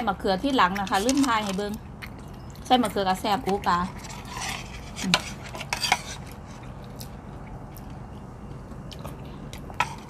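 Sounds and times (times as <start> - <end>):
cutlery clinking and scraping on plates: 4.0 - 6.4.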